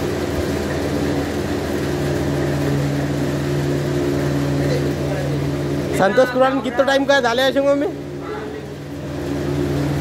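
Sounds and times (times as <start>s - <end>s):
clay mixing machine humming: 0.0s - 10.0s.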